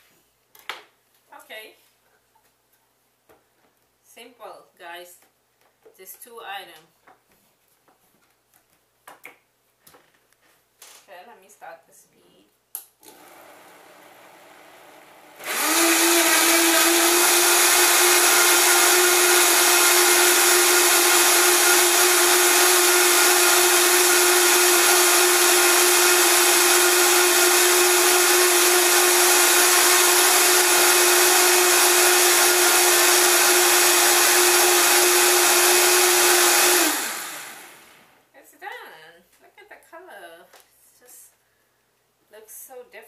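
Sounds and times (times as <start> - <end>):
blender running at high speed: 13.1 - 38.1.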